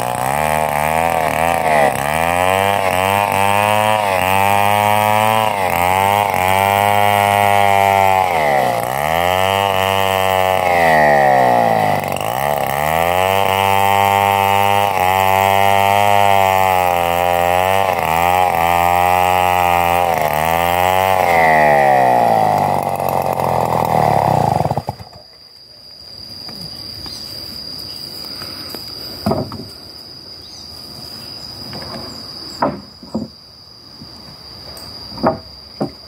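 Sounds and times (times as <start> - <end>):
chainsaw cutting log: 0.0 - 25.4.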